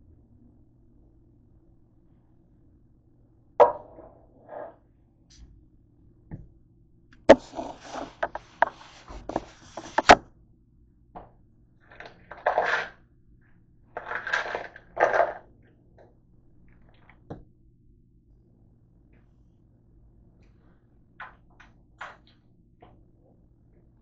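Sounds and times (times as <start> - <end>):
plastic tub tap: 3.6 - 4.0
objects knocking on kitchen counter: 3.6 - 4.8
phone set down: 7.3 - 10.2
dense clatter: 11.9 - 13.0, 14.0 - 15.4.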